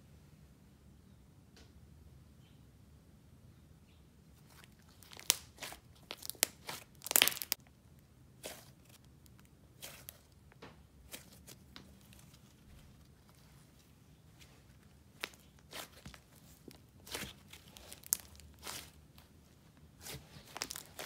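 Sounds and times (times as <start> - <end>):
slime clicking and crackling: 4.6 - 7.7, 15.1 - 19.3, 20.0 - 21.0.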